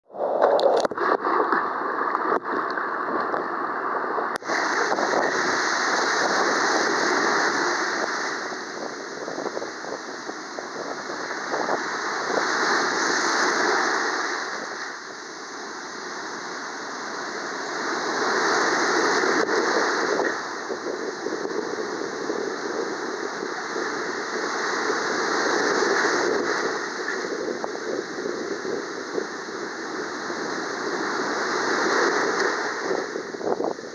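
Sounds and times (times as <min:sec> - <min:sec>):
surf breaking on beach: 0:00.1 - 0:33.9.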